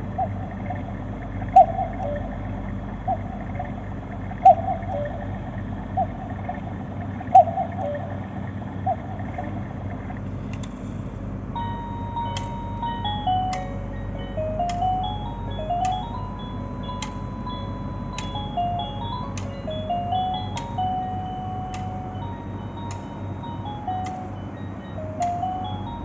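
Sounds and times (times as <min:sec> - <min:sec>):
cuckoo clock calling: 0:00.0 - 0:10.3, 0:11.5 - 0:26.0
clock mechanism clicks: 0:00.0 - 0:11.0, 0:11.6 - 0:26.0
music box tinkling melody: 0:11.6 - 0:26.0.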